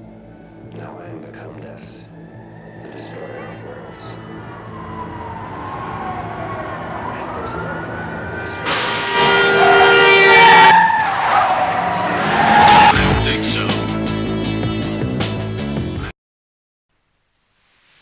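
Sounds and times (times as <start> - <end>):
car engine: 2.2 - 14.2
tyres screeching: 2.8 - 13.3.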